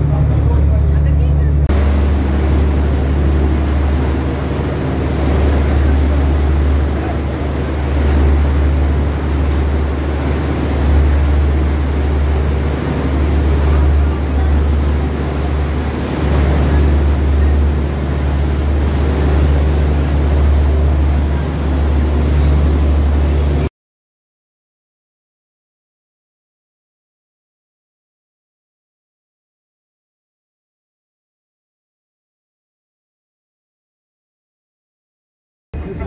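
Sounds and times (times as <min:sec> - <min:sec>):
boat engine droning: 0:00.0 - 0:23.7, 0:35.8 - 0:36.0
water rushing in wake: 0:01.6 - 0:23.7
wind on microphone: 0:01.7 - 0:23.7.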